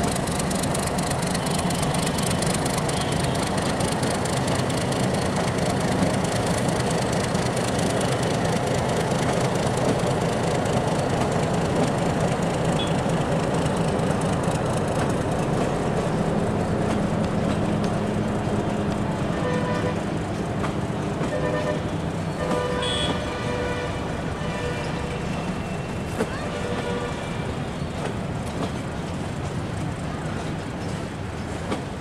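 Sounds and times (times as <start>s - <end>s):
diesel locomotive engine running: 0.0s - 32.0s
train wheels rolling on rails: 0.0s - 32.0s.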